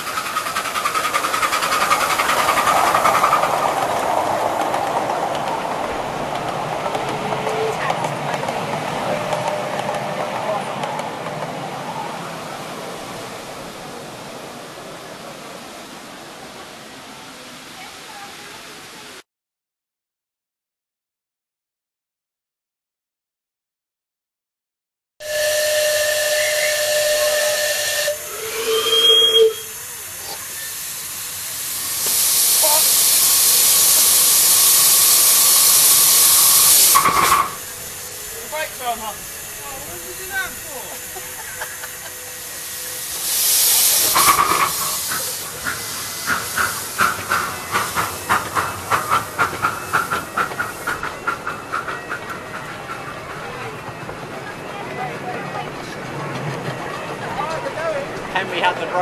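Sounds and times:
locomotive exhaust chuffs: 0.0s - 12.2s, 25.2s - 59.0s
steam hissing: 0.0s - 19.1s, 25.2s - 59.0s
carriages rolling past: 0.0s - 19.2s, 36.3s - 59.0s
steam locomotive whistle: 25.2s - 31.1s, 32.1s - 46.2s.

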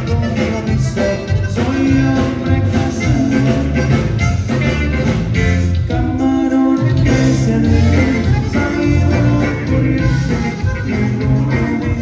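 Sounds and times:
accordion: 0.0s - 12.0s
drums: 0.0s - 12.0s
electric guitar: 0.0s - 12.0s.

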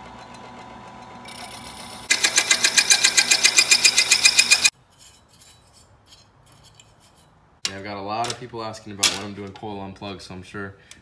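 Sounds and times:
milling machine spindle running: 0.1s - 4.7s
cutter chattering on metal: 1.3s - 4.7s.

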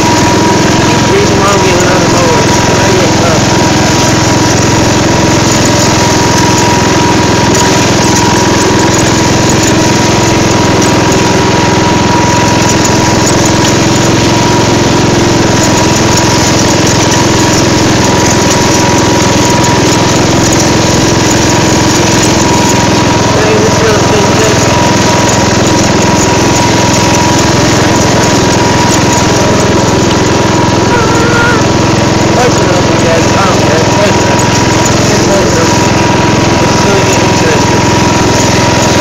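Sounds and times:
riding mower engine running: 0.0s - 39.0s
thin steady whine: 15.6s - 39.0s.

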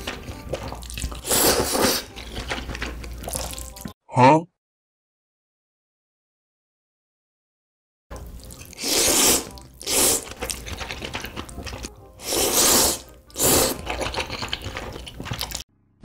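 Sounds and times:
wet chewing and smacking: 0.0s - 4.0s, 8.2s - 8.8s, 9.5s - 12.2s, 13.0s - 15.6s
person slurping noodles: 0.5s - 3.8s, 8.5s - 15.6s.

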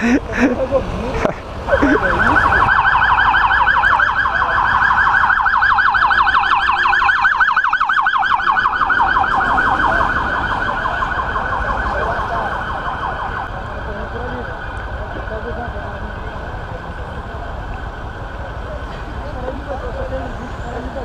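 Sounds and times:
siren yelping: 1.7s - 15.1s.

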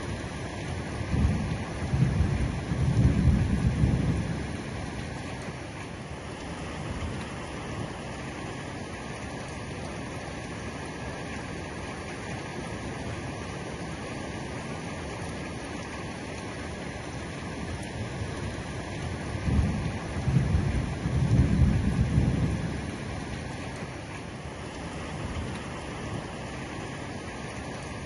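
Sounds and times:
heavy rain on a roof: 0.0s - 28.0s
thunder rumbling: 1.0s - 5.0s, 19.2s - 23.4s.

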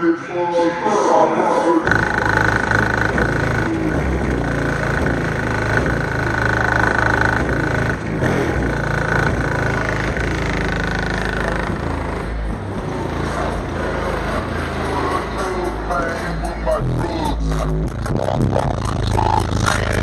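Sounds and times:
heavy bass from rap music: 0.0s - 20.0s
steady high tone: 1.8s - 8.0s.

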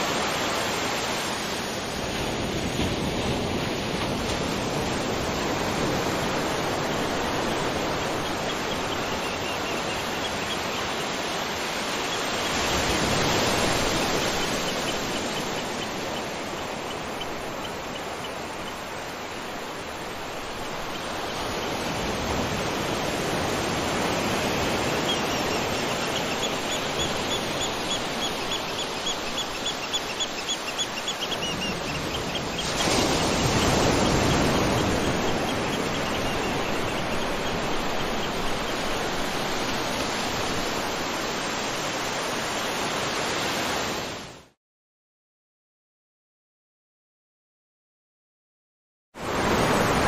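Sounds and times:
bird chirping: 24.8s - 38.9s.

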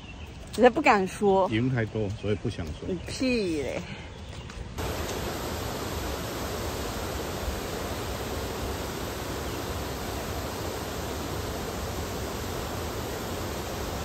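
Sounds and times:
water rushing over weir: 4.8s - 14.0s.

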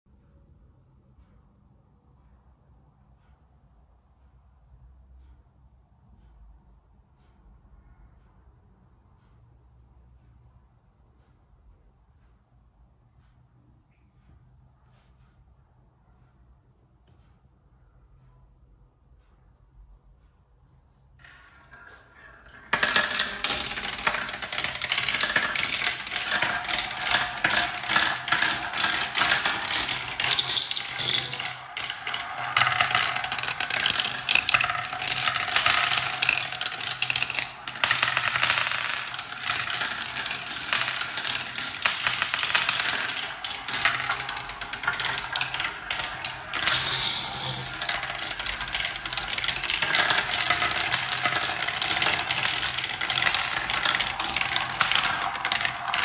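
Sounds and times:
marble rattling through plastic run: 21.2s - 56.0s.

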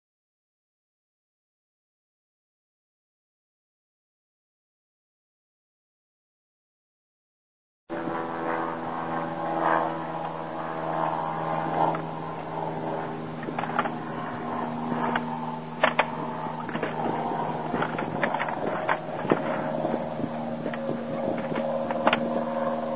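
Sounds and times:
propeller aircraft engine running: 7.9s - 22.9s.

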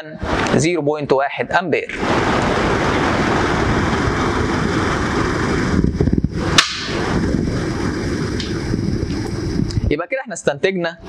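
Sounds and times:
motor and generator running: 2.0s - 9.9s.

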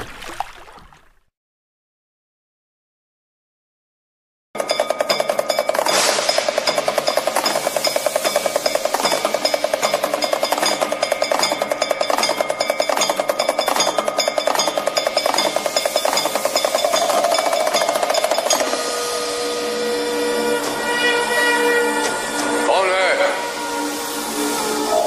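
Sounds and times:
rapid percussion pulse: 4.6s - 18.8s.

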